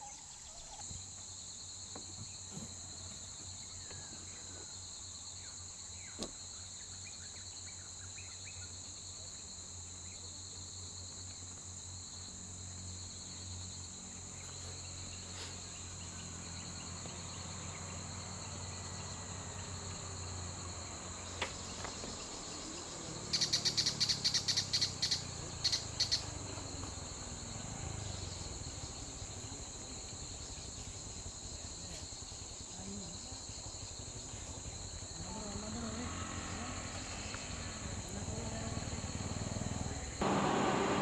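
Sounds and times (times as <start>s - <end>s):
insect chorus buzzing: 0.0s - 41.0s
loud rapid high pulses: 40.2s - 41.0s.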